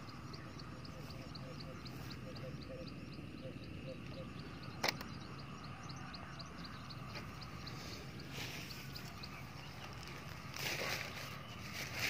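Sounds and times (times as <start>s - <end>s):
rustling through grass: 7.6s - 12.0s.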